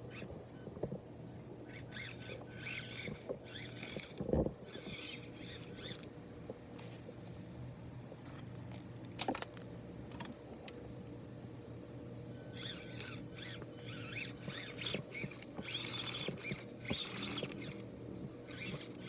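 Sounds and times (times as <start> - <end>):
toy car motor hum: 0.0 - 6.1, 12.3 - 19.0.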